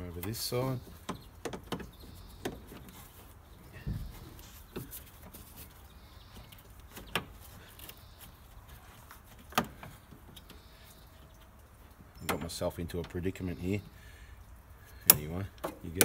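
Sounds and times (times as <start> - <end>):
dull thump: 3.8 - 4.4.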